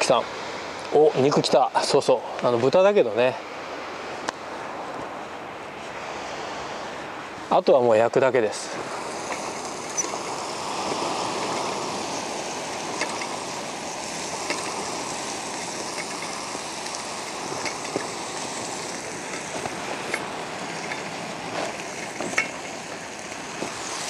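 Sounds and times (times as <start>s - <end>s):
food sizzling in a frying pan: 9.0s - 19.6s.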